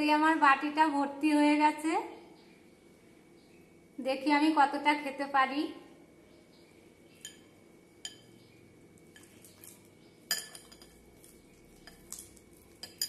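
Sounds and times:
hand clinking glass bowl: 0:07.2 - 0:08.4, 0:09.0 - 0:13.0.

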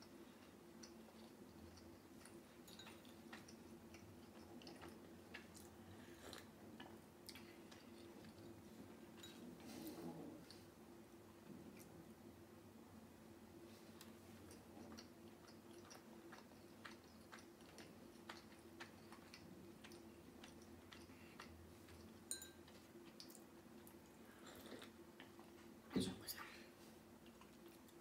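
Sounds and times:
person chewing: 0:00.0 - 0:09.2, 0:13.9 - 0:25.6, 0:27.2 - 0:28.0
faint steady hum: 0:00.0 - 0:28.0.

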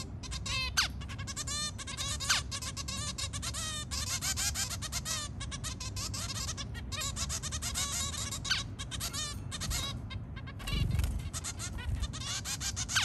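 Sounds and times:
finches calling: 0:00.0 - 0:13.0.

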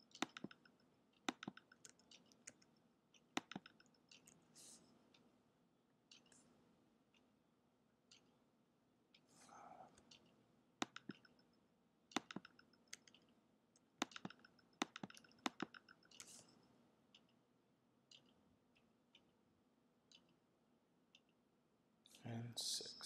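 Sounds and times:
computer mouse clicking: 0:00.0 - 0:04.7, 0:06.1 - 0:06.5, 0:09.9 - 0:11.5, 0:12.1 - 0:17.4.

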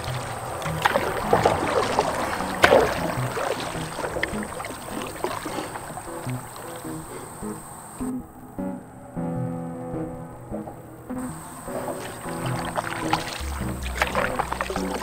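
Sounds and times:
sharp splash or knock: 0:00.0 - 0:06.0, 0:11.7 - 0:15.0
paddle splashing in water: 0:00.0 - 0:08.0, 0:11.3 - 0:15.0.

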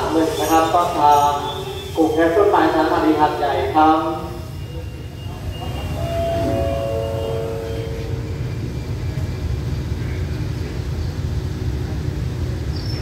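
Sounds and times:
train low rumble: 0:00.0 - 0:13.0
train horn: 0:04.4 - 0:09.4.

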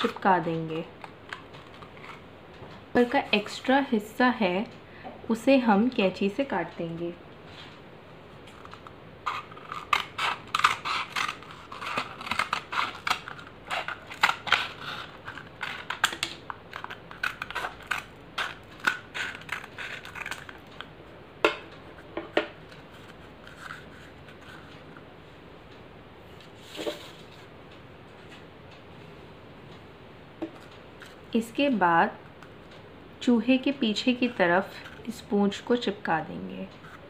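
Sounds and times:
scissors snipping paper: 0:08.5 - 0:20.9.

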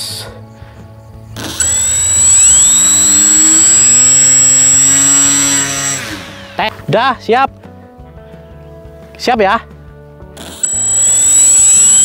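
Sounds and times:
electric motor propeller whine: 0:01.2 - 0:06.9, 0:10.4 - 0:12.0.

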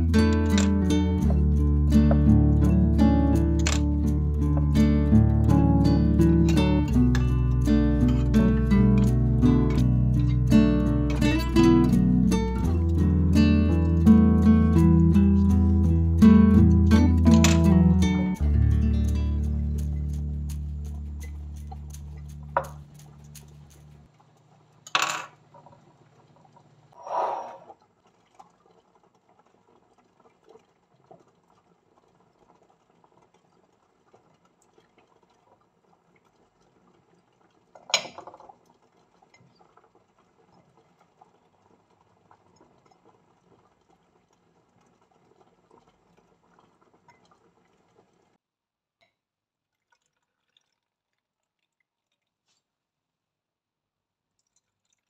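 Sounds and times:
background music: 0:00.0 - 0:23.8.

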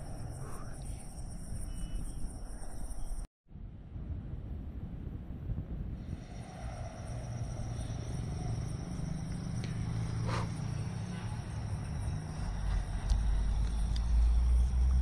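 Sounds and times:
insects chirping: 0:00.0 - 0:03.3, 0:06.0 - 0:15.0
low rumble: 0:03.5 - 0:15.0.

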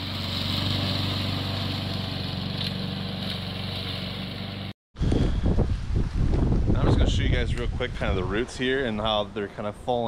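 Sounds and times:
lawn mower engine running: 0:00.0 - 0:04.7.

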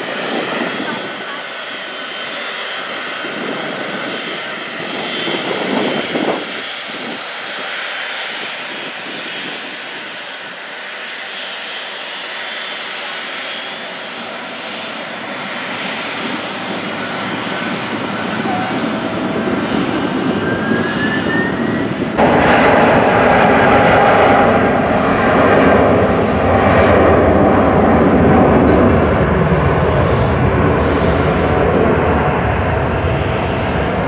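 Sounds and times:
jet engines hissing: 0:00.0 - 0:34.0
engine rumble: 0:10.9 - 0:34.0
high engine whine: 0:13.1 - 0:34.0.

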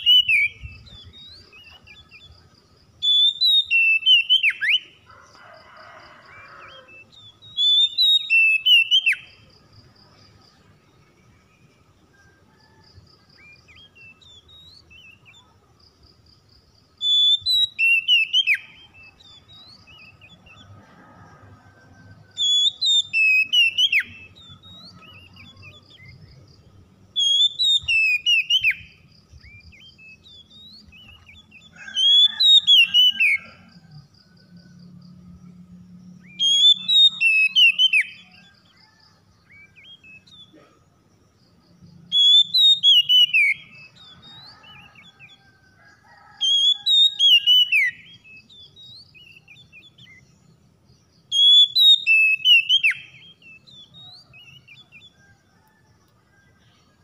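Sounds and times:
bird singing whistled phrases: 0:00.0 - 0:02.1, 0:03.0 - 0:04.9, 0:07.5 - 0:09.4, 0:17.0 - 0:20.2, 0:22.4 - 0:26.1, 0:27.2 - 0:28.9, 0:36.3 - 0:38.4, 0:42.1 - 0:44.5, 0:46.6 - 0:49.8, 0:51.4 - 0:54.8.

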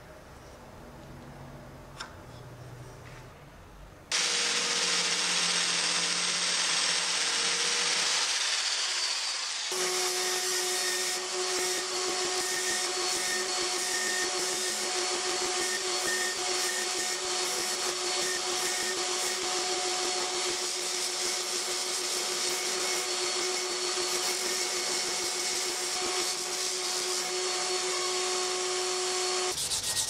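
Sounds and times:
angle grinder sanding wood: 0:04.1 - 0:30.0.

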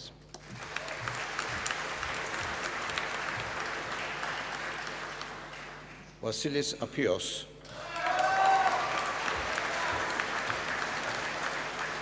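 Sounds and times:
audience applauding: 0:00.3 - 0:06.2, 0:07.7 - 0:12.0.

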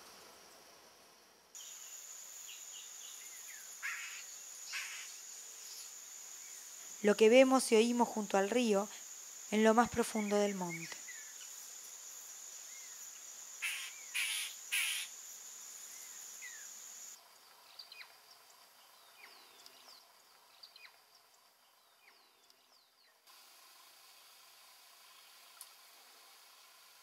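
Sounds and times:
high insect trill: 0:00.0 - 0:27.0
short harsh calls: 0:13.6 - 0:15.1.

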